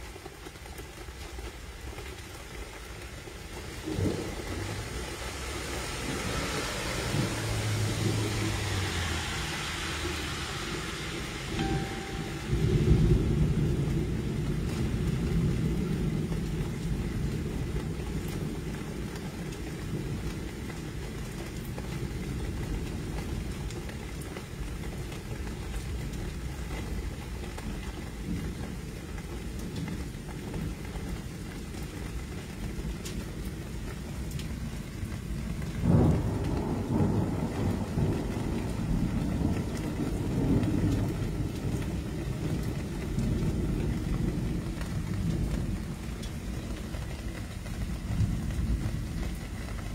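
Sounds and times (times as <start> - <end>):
rain: 0.0 - 49.9
thunder rumbling: 5.8 - 20.2, 35.4 - 49.9.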